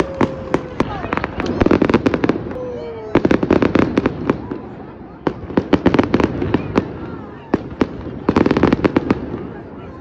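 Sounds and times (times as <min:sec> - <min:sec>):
fireworks popping: 0:00.0 - 0:09.9
fireworks bangs: 0:00.0 - 0:10.0.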